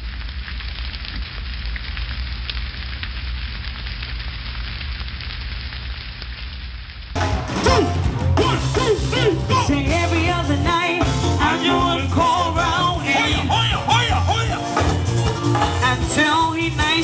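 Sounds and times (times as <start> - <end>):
bonfire crackling and popping: 0.0 - 7.6
live music with singing: 7.2 - 17.0.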